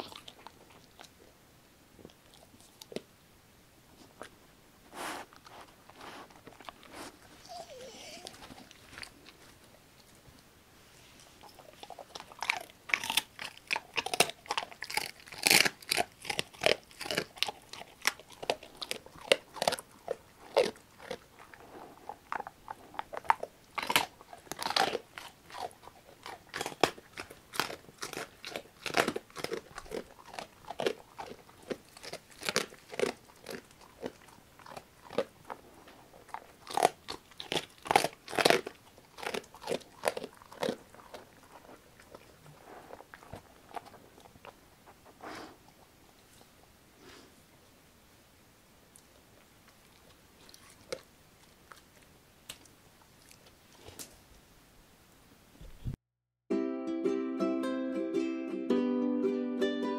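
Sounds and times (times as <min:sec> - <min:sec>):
dog crunching bones: 0:00.0 - 0:01.3, 0:04.2 - 0:10.2, 0:11.2 - 0:45.8, 0:49.7 - 0:54.1.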